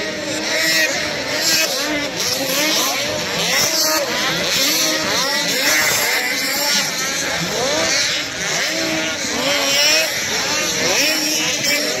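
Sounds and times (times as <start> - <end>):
snowmobile engines revving: 0.0 - 12.0.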